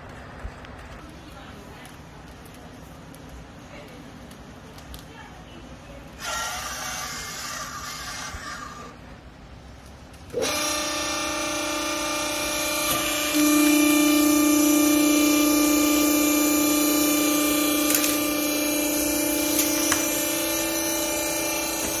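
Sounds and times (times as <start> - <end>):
hydraulic pump motor humming: 10.3 - 22.0.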